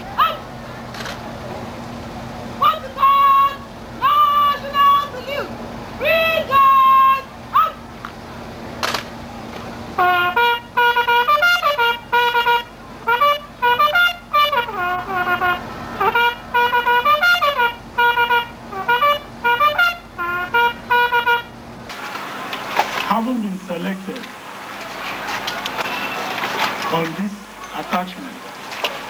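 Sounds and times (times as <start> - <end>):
faint steady hum: 0.0 - 29.0
trumpet playing a melody: 2.6 - 5.3, 9.9 - 21.6.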